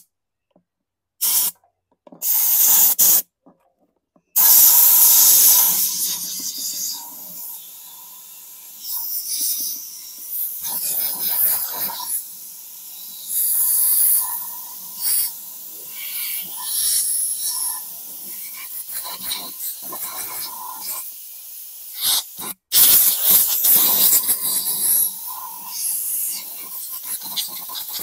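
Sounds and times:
compressed air blow gun hissing: 1.2 - 1.5, 2.2 - 3.2, 4.4 - 28.0.

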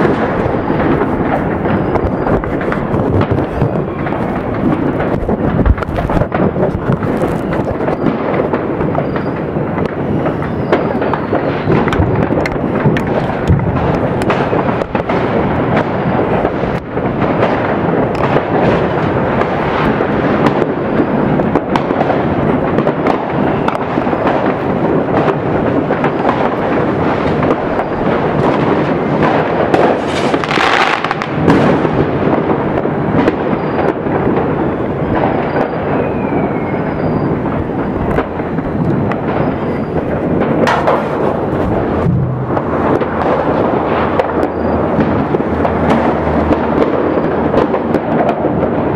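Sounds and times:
sharp bangs: 0.0 - 20.6, 37.4 - 48.4
fireworks crackling and booming: 0.0 - 48.9
hissing rush of fireworks: 0.0 - 48.9.

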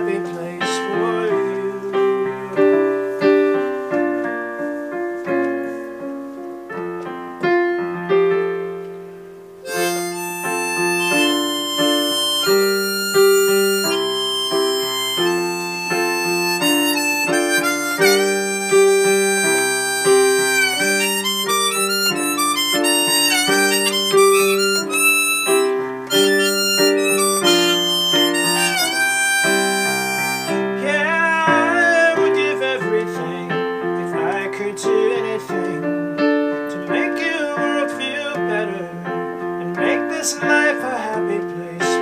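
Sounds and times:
digital piano chords: 0.0 - 42.0
harmonica melody: 9.6 - 39.1.

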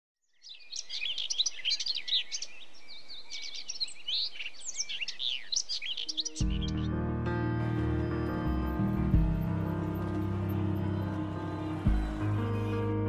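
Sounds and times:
birds chirping and singing: 0.2 - 13.0
music with low held notes: 6.3 - 13.0.

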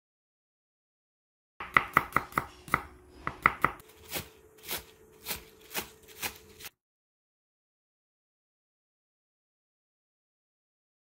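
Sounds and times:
knife chopping on wooden board: 1.6 - 6.7.

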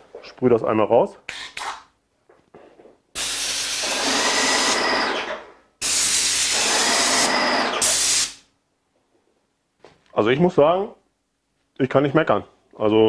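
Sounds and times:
paint sprayer hissing: 3.2 - 4.8, 5.8 - 8.5.

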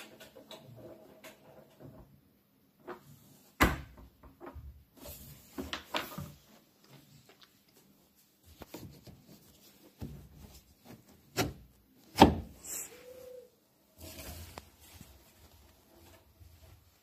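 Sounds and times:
cloth rubbing in washer drum: 12.8 - 17.0.

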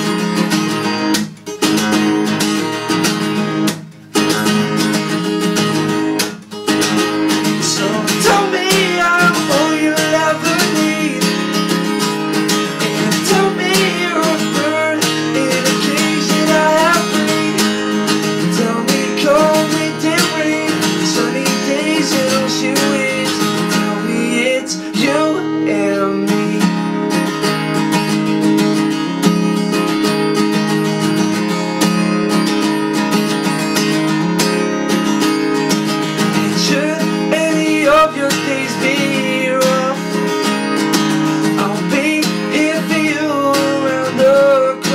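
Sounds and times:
acoustic guitar strumming: 0.0 - 44.9
man singing: 7.4 - 11.8, 12.8 - 27.2, 36.4 - 40.6, 41.4 - 44.9.

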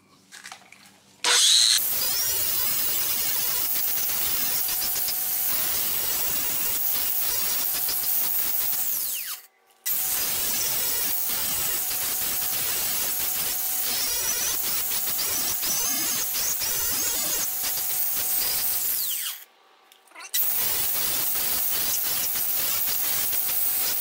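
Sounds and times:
angle grinder grinding steel: 1.2 - 19.5.

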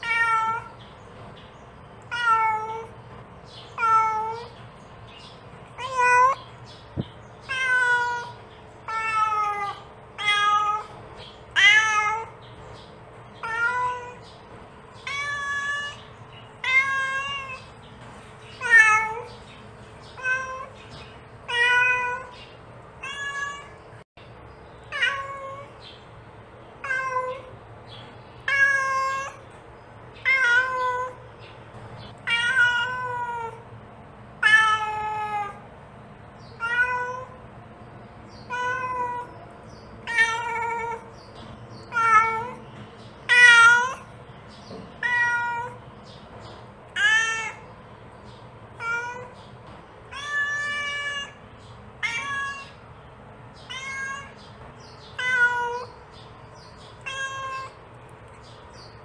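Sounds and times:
cat meowing: 0.0 - 0.8, 2.0 - 3.0, 3.7 - 4.6, 5.8 - 6.5, 7.4 - 12.4, 13.4 - 14.2, 15.0 - 17.8, 18.6 - 19.4, 20.2 - 20.8, 21.5 - 22.4, 23.0 - 23.8, 24.9 - 25.7, 26.8 - 27.5, 28.4 - 29.4, 30.2 - 31.2, 32.2 - 33.6, 34.4 - 35.7, 36.6 - 37.4, 38.4 - 39.4, 40.0 - 41.2, 41.8 - 42.6, 43.2 - 44.1, 45.0 - 45.8, 46.9 - 47.8, 48.8 - 49.5, 50.1 - 51.4, 52.0 - 52.8, 53.5 - 56.1, 56.7 - 57.8.

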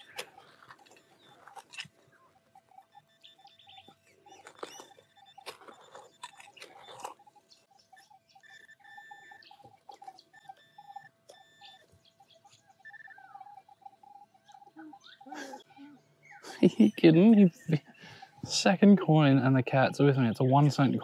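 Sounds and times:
digging in dirt: 0.0 - 2.6, 3.8 - 7.4
metal detector beeping: 0.0 - 15.6.

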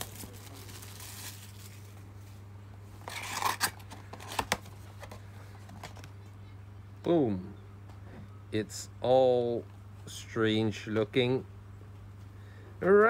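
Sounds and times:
plastic wrap crinkling and tearing: 0.0 - 2.1, 3.0 - 4.6
steady low hum: 0.0 - 13.0.

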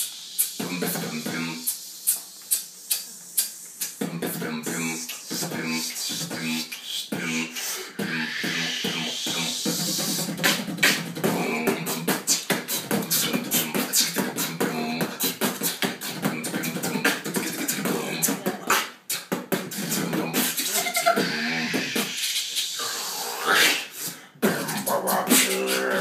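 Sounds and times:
beatboxing mouth percussion: 0.0 - 26.0.

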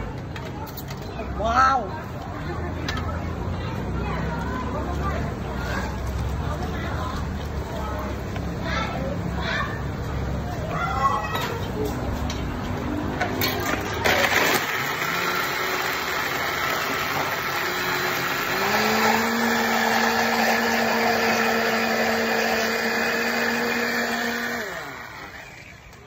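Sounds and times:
blender motor running: 14.0 - 26.0.

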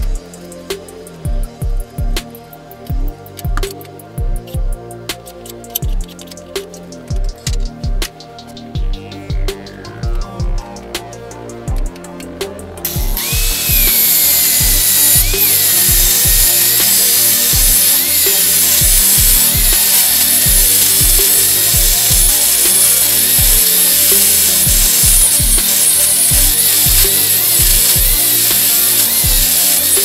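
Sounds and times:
background music with beat: 0.0 - 30.0
angle grinder cutting steel: 11.4 - 30.0.

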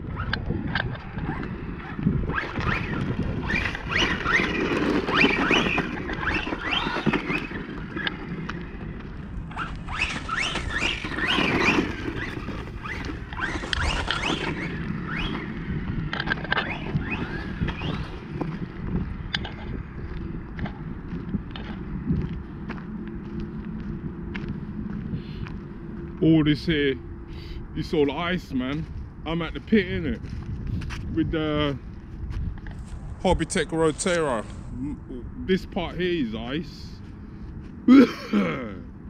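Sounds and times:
wind noise on microphone: 0.0 - 39.0
toy truck electric motor whining: 1.1 - 8.4, 9.5 - 18.6.

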